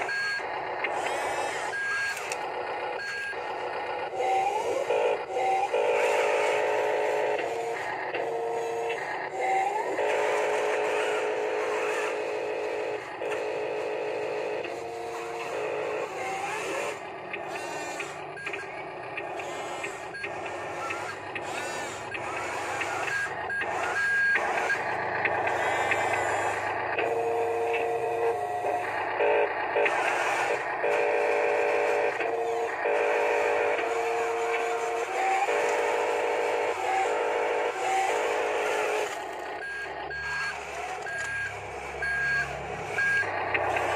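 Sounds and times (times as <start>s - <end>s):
beeping from small speaker: 0.0s - 0.5s, 1.4s - 2.3s, 2.9s - 3.5s, 19.8s - 24.9s, 39.6s - 43.4s
rough grinding noise: 0.0s - 43.9s
simulated diesel engine sound: 0.0s - 43.9s.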